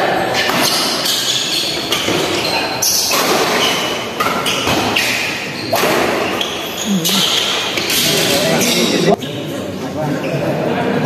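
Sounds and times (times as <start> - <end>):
sports hall noise: 0.0 - 11.0
rackets hitting shuttlecock: 0.4 - 6.6.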